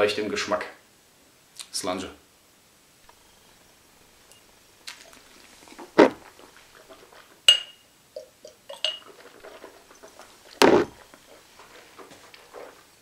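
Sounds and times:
glass knocking: 7.5 - 7.8
glassy clinks: 7.5 - 9.1.

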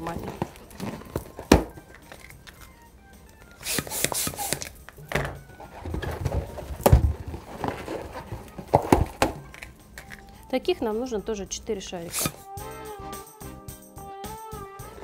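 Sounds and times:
balloon latex rubbing and squeaking: 0.0 - 10.3, 12.0 - 12.5
dull thump: 5.1 - 7.5.

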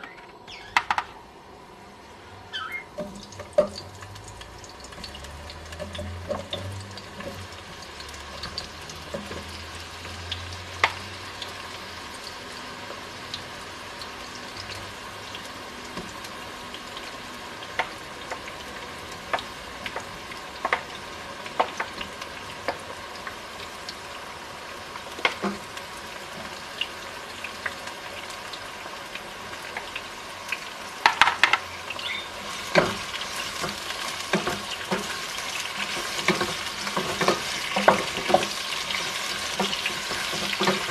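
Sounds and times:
vegetables sizzling in a pot: 0.0 - 40.9
pieces dropping into pot: 31.0 - 31.7.

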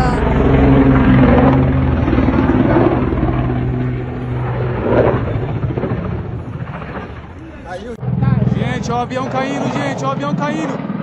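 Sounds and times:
turboprop airliner engine drone: 0.0 - 11.0
wind noise: 0.0 - 11.0.

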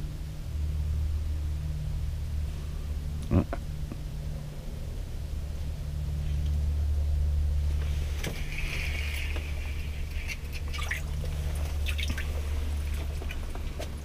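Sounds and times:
steady low hum: 0.0 - 14.0
water trickling and splashing: 7.8 - 14.0.

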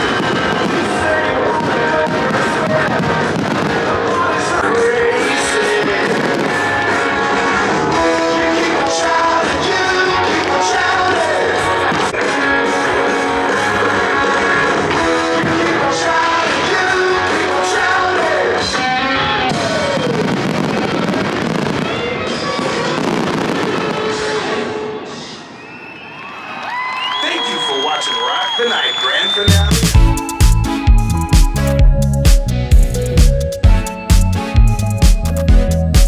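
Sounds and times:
fireworks bangs: 0.0 - 26.0
rock song with singing: 0.7 - 20.0.

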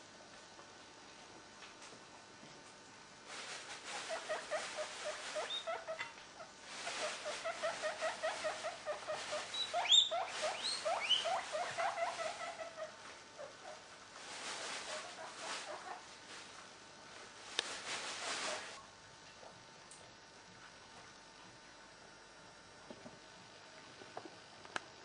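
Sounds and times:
squirrel high squeals: 7.3 - 12.9
squirrel chattering squeaks: 9.5 - 12.4.

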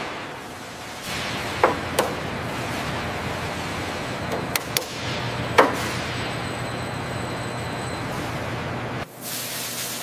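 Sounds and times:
workshop hiss: 0.0 - 10.0
sharp clicks and clanks: 4.3 - 6.0.

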